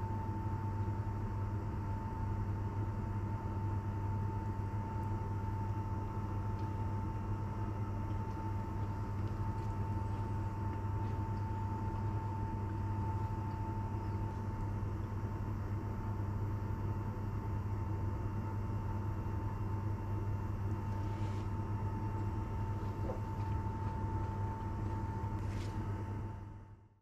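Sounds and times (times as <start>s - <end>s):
machine hum: 3.5s - 16.4s, 18.8s - 25.7s.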